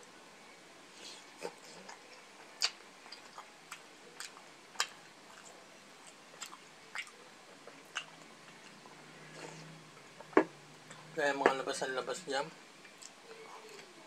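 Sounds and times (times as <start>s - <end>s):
person chewing food: 1.0s - 11.1s, 12.8s - 14.0s.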